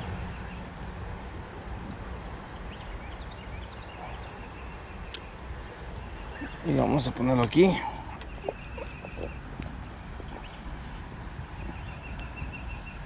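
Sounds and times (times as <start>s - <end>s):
faint bird chirps: 6.0s - 6.9s.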